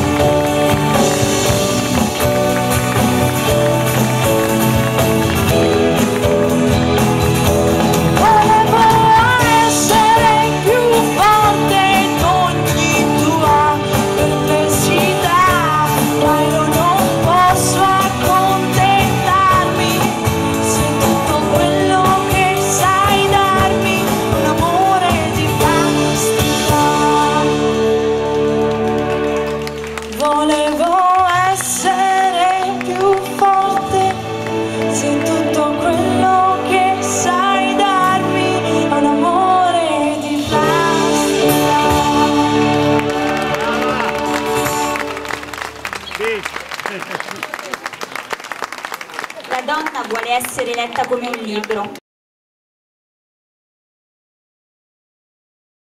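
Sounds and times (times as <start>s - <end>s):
live band music: 0.0s - 47.9s
woman singing: 8.1s - 28.4s, 30.1s - 45.0s.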